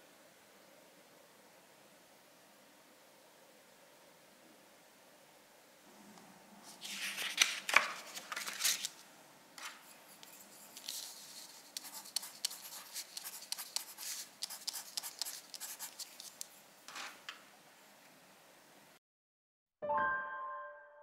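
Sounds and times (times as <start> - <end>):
drawing tool scratching paper: 9.8 - 16.5.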